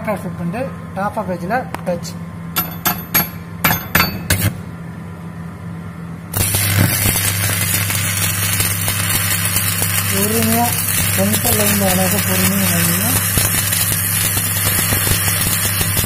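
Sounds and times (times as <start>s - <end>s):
electrode tapping on steel: 2.6s - 4.5s, 6.4s - 16.0s
welding arc crackling hiss: 6.3s - 16.0s.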